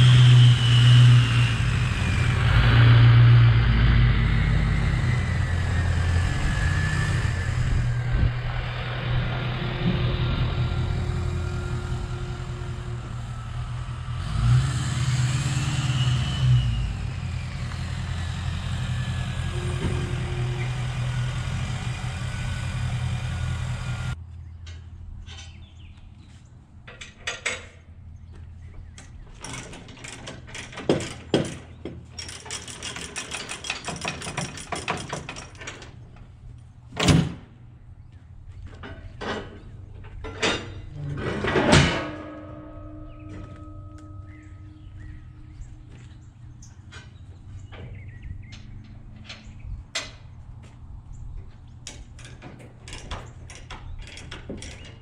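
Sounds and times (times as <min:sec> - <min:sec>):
diesel engine idling and revving: 0:00.0 - 0:24.2, 0:39.2 - 0:52.4
metal clanks and rattles: 0:07.2 - 0:14.2, 0:17.4 - 0:22.3, 0:26.8 - 0:28.1, 0:28.8 - 0:37.6, 0:38.6 - 0:50.4, 0:51.4 - 0:55.0.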